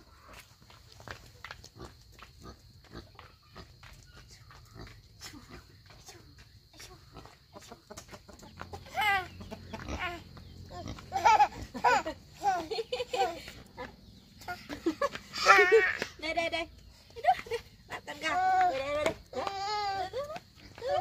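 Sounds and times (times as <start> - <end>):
footsteps on packed earth: 0.0 - 11.2
chickens: 7.0 - 11.1.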